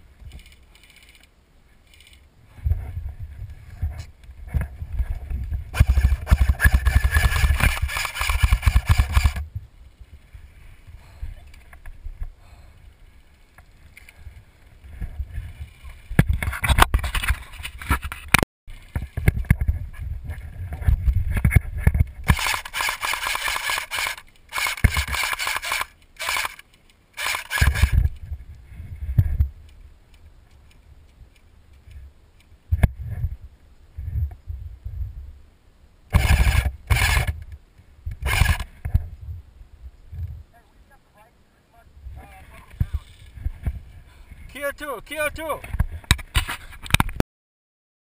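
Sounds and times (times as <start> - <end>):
airsoft gun firing full auto: 5.8 - 9.4, 22.3 - 26.6, 27.2 - 28.0, 36.1 - 37.3.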